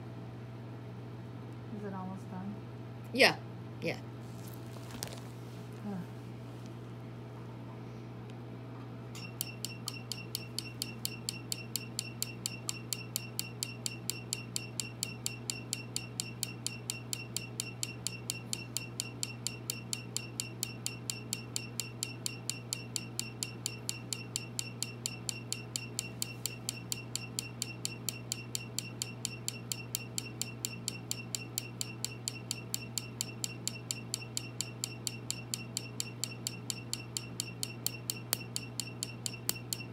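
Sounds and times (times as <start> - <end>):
machine low hum: 0.0 - 39.9
laser pulse snaps with beeps: 9.2 - 39.9.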